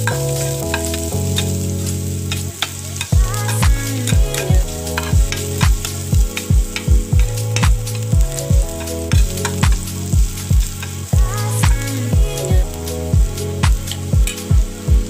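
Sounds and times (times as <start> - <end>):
background music with kick drum: 0.0 - 15.0
garlic sizzling in oil: 0.0 - 15.0
spoon stirring in pan: 2.2 - 7.7.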